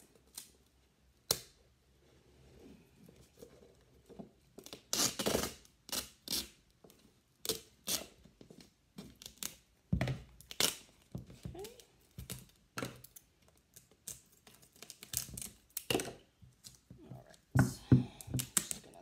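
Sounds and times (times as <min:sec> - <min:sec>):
duct tape ripping off roll: 0:04.6 - 0:06.6, 0:07.4 - 0:08.2, 0:10.4 - 0:11.0.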